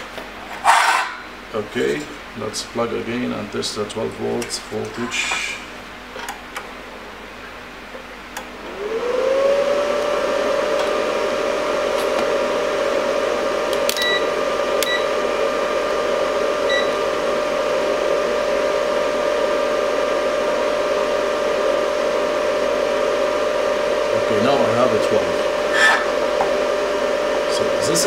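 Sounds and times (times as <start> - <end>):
cooling fan whine: 0.0 - 28.0
multimeter beeps: 14.0 - 15.1.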